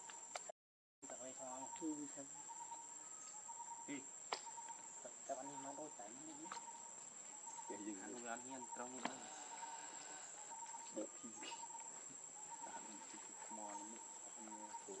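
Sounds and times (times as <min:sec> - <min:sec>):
lower pulsing insect tone: 0:00.0 - 0:15.0
high-pitched insect chirring: 0:01.1 - 0:15.0
faint voices: 0:07.6 - 0:15.0.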